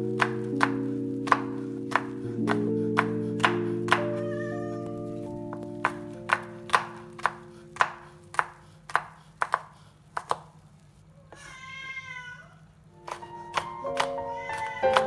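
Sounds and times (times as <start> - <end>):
soft background music: 0.0 - 8.4, 13.0 - 15.0
knife chopping on cutting board: 5.8 - 10.4.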